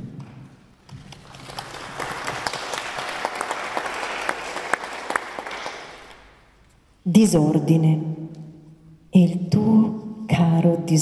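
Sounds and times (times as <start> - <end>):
audience applauding: 0.9 - 6.4.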